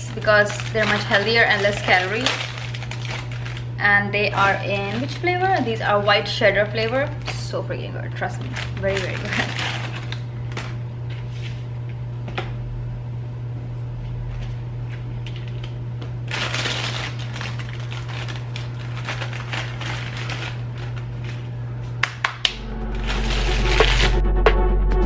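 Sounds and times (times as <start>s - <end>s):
noisy food handling: 0.0s - 11.6s, 14.2s - 22.4s
steady low hum: 0.0s - 25.0s.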